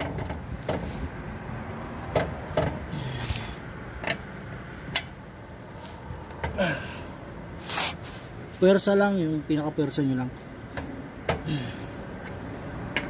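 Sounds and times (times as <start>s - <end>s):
wrench clicking on lug nuts: 4.0s - 5.2s.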